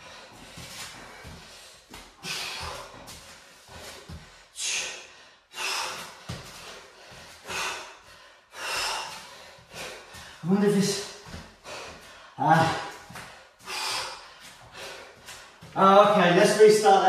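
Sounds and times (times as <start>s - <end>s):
man breathing hard: 0.0s - 15.8s.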